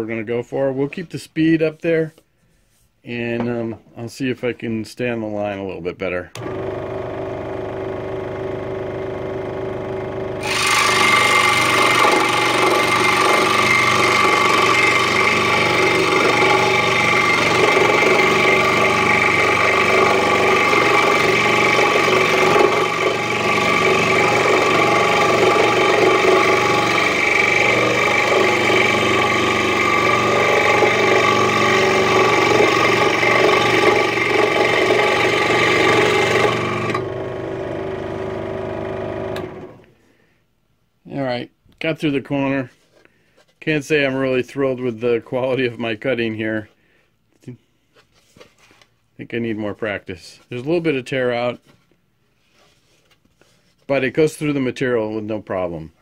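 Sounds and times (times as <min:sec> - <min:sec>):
scroll saw running: 0:06.4 - 0:40.0
saw cutting particle board: 0:09.5 - 0:39.8.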